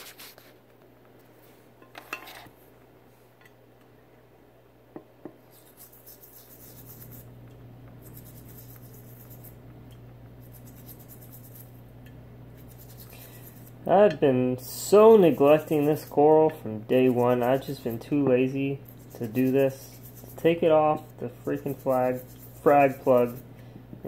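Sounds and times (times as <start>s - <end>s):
low steady hum: 0.0s - 24.0s
toothbrush scrubbing: 5.4s - 7.3s, 7.9s - 11.8s, 12.6s - 13.9s, 14.7s - 23.5s.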